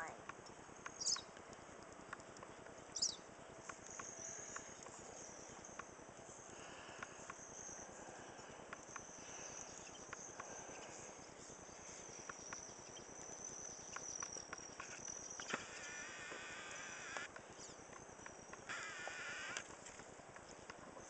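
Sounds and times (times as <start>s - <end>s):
wavering insect calls: 0.0s - 1.4s, 2.1s - 21.0s
insects trilling: 0.0s - 21.0s
small clicks: 12.2s - 21.0s.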